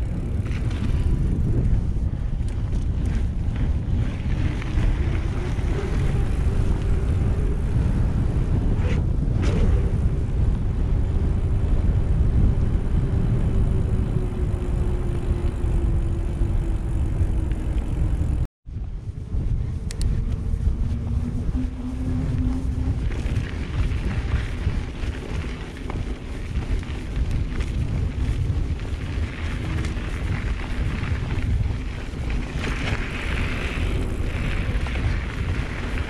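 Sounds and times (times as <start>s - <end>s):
faint hum dropping in pitch: 0.0s - 25.9s
wind buffeting microphone: 0.0s - 36.0s.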